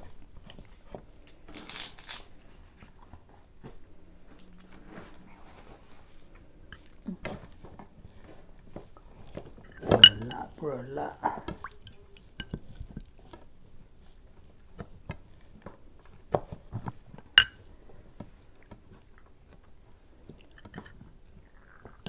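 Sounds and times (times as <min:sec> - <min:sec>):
people chewing food: 0:00.0 - 0:22.0
spoons clicking on plates: 0:09.9 - 0:10.4, 0:17.4 - 0:17.6.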